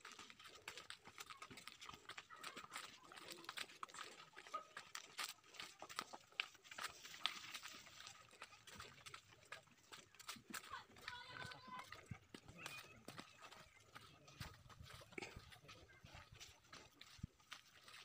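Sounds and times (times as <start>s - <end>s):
footsteps on dirt path: 0.0s - 18.0s.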